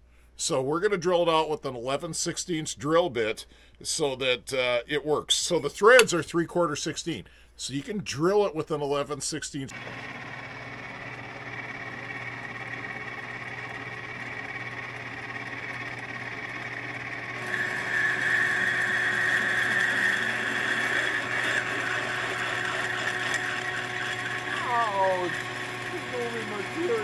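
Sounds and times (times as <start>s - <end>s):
drill bit whining in metal: 9.7s - 27.0s
metal lathe running: 9.7s - 27.0s.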